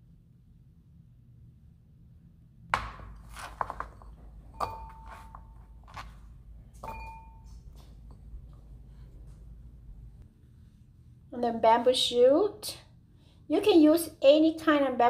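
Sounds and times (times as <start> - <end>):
ceramic bowl ringing: 4.5 - 5.9, 6.8 - 8.2.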